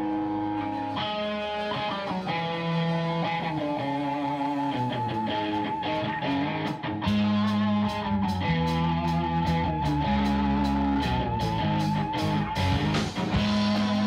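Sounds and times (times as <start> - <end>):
bass guitar: 0.0 - 14.0
electric guitar: 0.0 - 14.0
held wavering high note: 0.0 - 14.0
steady drum beat: 11.4 - 14.0.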